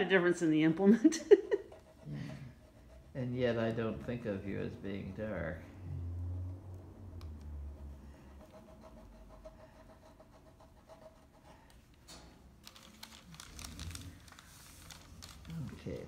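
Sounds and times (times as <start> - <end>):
drawing tool scratching paper: 8.4 - 11.6.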